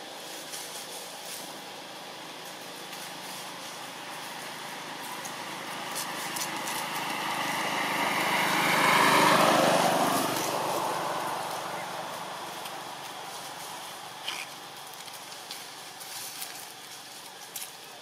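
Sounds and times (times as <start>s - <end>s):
motorbike engine passing: 2.2s - 15.9s.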